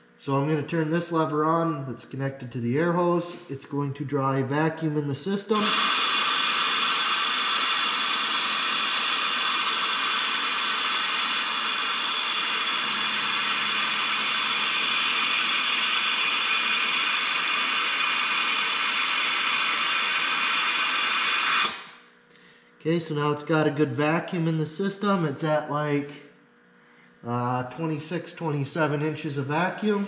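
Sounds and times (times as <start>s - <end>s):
compressed air hissing: 5.5s - 22.0s.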